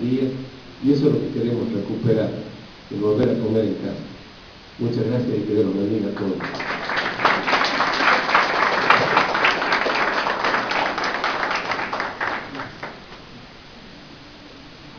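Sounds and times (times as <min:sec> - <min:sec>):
audience applauding: 0:06.2 - 0:13.3.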